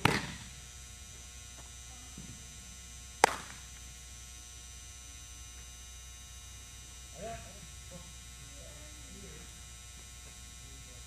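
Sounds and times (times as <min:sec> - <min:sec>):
baseball smacking into glove: 0:00.0 - 0:00.5, 0:03.2 - 0:03.7
steady electrical hum: 0:00.0 - 0:11.0.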